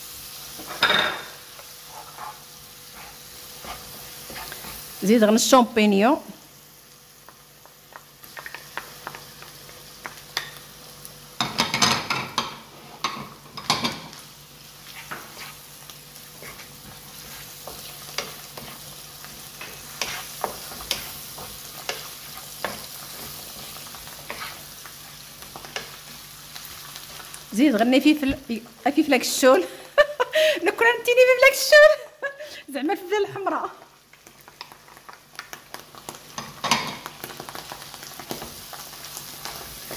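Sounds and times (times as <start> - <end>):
mushrooms sizzling in oil: 0.0 - 39.9
wooden spatula scraping pan: 1.8 - 4.9, 14.8 - 15.7, 16.4 - 24.7.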